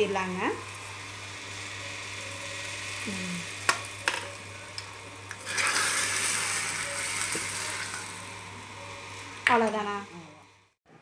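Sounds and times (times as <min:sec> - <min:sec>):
hot oil sizzling: 0:00.0 - 0:10.1.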